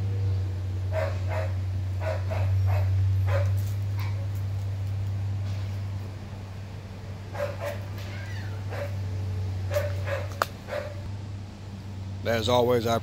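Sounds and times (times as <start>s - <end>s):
steady low hum: 0.0s - 13.0s
puppy whining: 7.4s - 11.1s.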